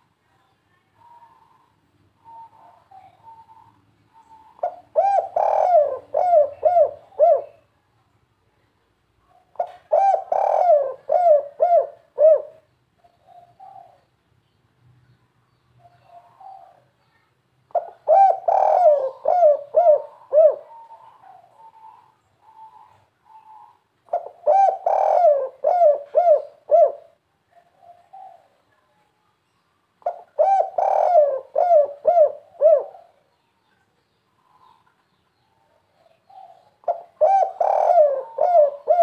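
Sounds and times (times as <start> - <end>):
dove cooing: 1.0 - 7.7, 9.3 - 14.1, 15.8 - 16.9, 17.7 - 28.7, 30.0 - 33.4, 35.9 - 39.0.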